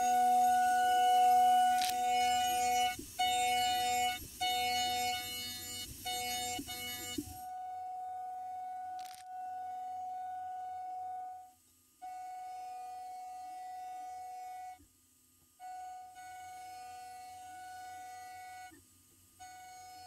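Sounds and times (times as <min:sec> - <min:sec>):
milling machine high-pitched whine: 0:00.0 - 0:11.5, 0:15.7 - 0:18.8, 0:19.4 - 0:20.0.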